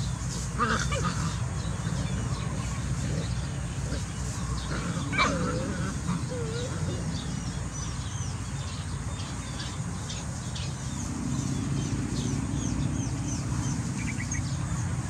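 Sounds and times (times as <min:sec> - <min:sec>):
small birds chirping: 0:00.0 - 0:15.0
low steady rumble: 0:05.6 - 0:15.0.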